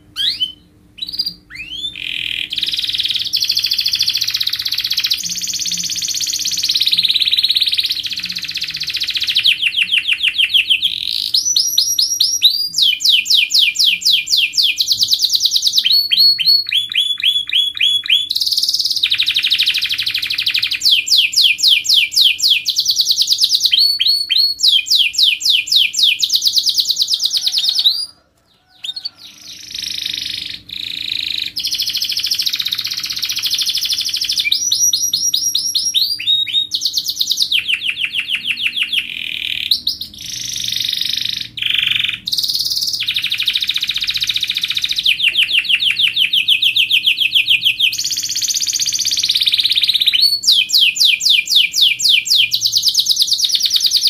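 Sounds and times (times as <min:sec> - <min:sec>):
canary singing rapid trills: 0:00.0 - 0:54.0.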